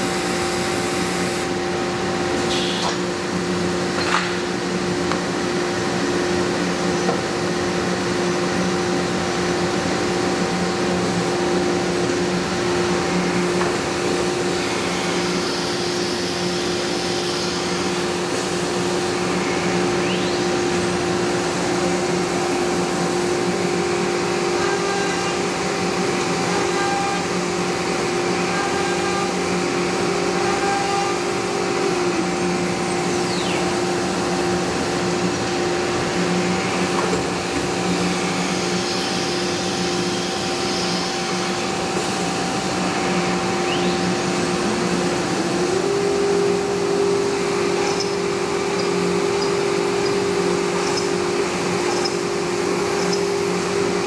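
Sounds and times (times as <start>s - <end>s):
router machine hum: 0.0s - 54.0s
brief machine whines: 2.4s - 3.1s, 13.3s - 18.2s, 19.2s - 22.3s, 45.4s - 54.0s.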